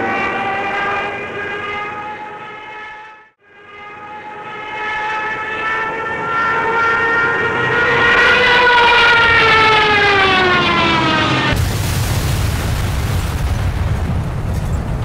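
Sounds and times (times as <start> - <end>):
propeller plane flyby: 0.0 - 11.9.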